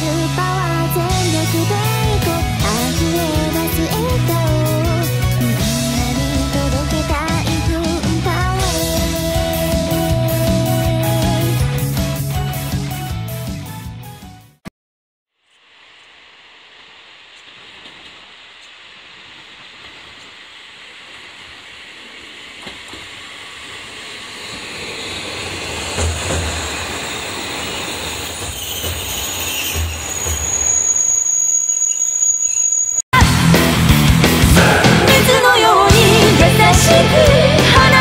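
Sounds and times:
diesel train passing: 0.0s - 13.9s, 15.6s - 38.0s
high steady squeal: 15.6s - 33.1s.

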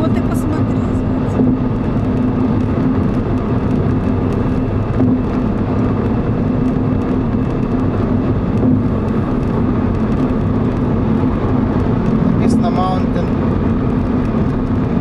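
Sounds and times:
car driving at highway speed: 0.0s - 15.0s.

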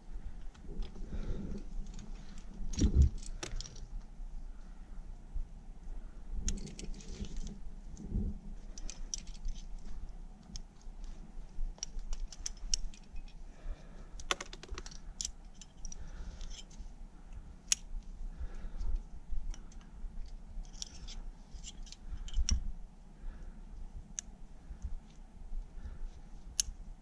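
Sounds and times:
metal climbing hardware jingling: 11.8s - 13.4s.

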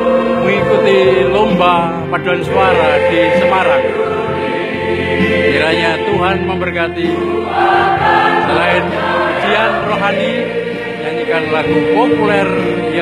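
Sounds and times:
mixed choir singing in harmony: 0.0s - 13.0s.

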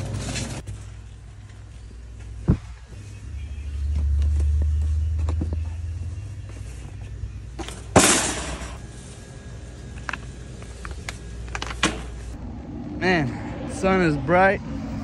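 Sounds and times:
shopping cart rumbling: 0.0s - 1.3s
box crashing into metal cart: 7.8s - 8.8s.

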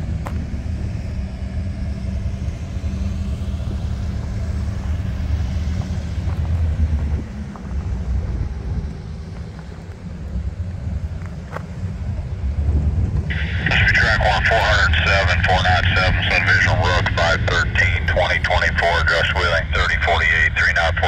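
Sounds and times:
cars crossing railroad tracks: 0.0s - 21.0s
idling locomotive rumble: 0.0s - 21.0s.

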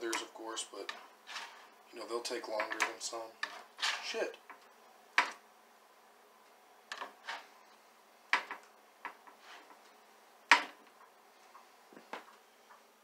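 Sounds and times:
spatula scraping metal baking sheet: 1.0s - 1.7s, 3.4s - 4.3s, 7.1s - 7.5s, 9.3s - 9.8s.

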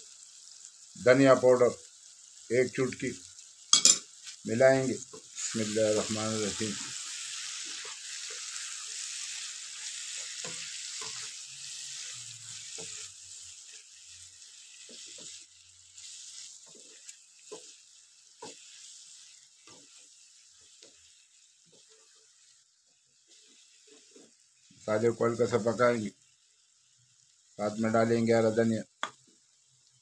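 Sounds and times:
onions sizzling in a frying pan: 0.0s - 30.0s
spatula scraping and knocking pan: 6.8s - 13.9s, 14.8s - 15.4s, 16.0s - 21.0s.

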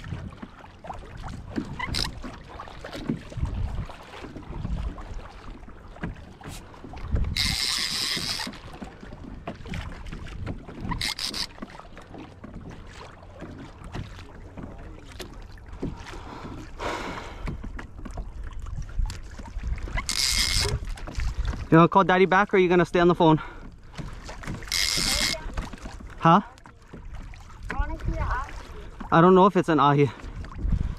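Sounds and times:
water rumbling against kayak: 0.0s - 30.9s
wind: 0.0s - 30.9s
fishing reel drag buzzing: 1.8s - 2.2s, 7.3s - 8.6s, 11.0s - 11.6s, 20.0s - 20.8s, 24.7s - 25.4s.

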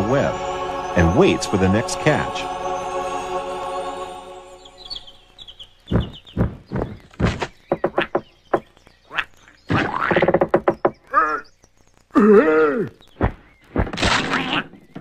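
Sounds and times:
cartoon knocks and thumps: 5.9s - 8.6s, 9.7s - 11.0s.

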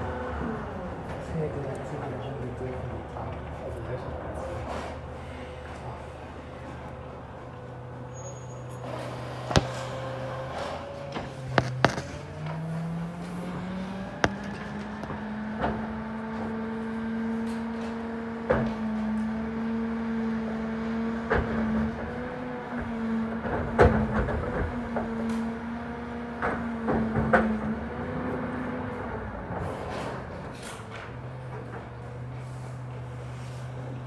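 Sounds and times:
garbage truck engine revving: 8.8s - 30.5s.

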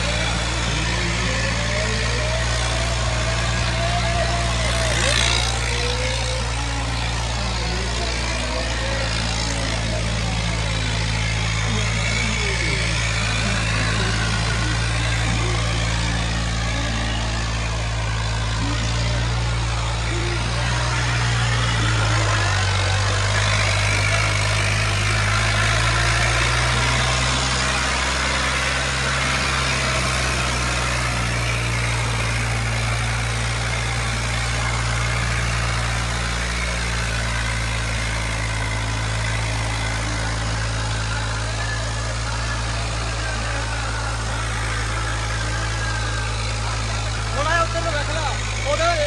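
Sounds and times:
tractor diesel engine running: 0.0s - 49.0s.

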